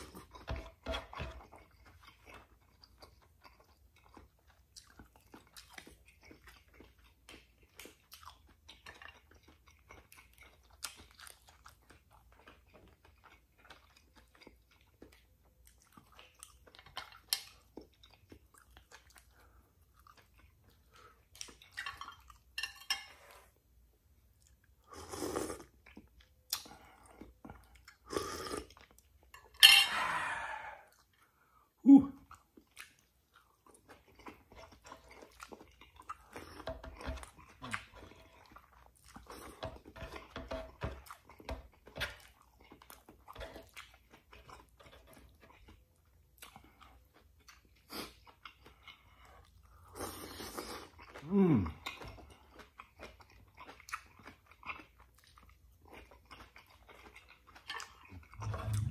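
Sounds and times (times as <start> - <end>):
chewing and crunching: 0.0 - 58.9
short falling vocal sounds: 31.8 - 32.2, 58.4 - 58.9
slurping from a spoon: 58.2 - 58.9.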